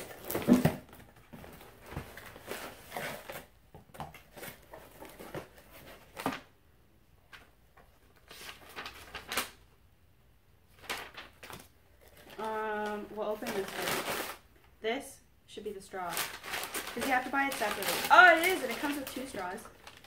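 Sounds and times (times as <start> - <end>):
cardboard and paper rustling: 0.0 - 6.5, 7.3 - 9.6, 10.7 - 14.4, 16.0 - 20.0
person's voice held pitch: 17.0 - 19.7.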